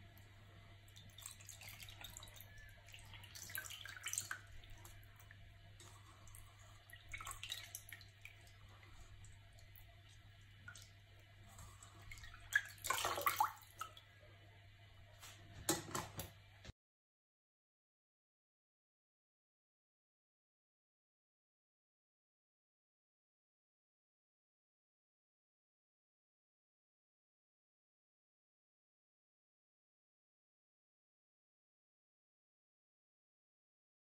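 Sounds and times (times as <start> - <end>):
hands washing meat in water: 0.2 - 14.1
water sloshing: 1.0 - 14.0.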